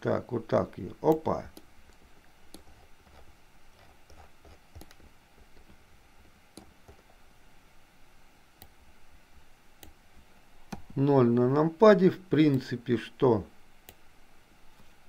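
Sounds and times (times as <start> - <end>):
room hiss: 0.0 - 15.0
mouse and keyboard clicks: 1.1 - 5.8.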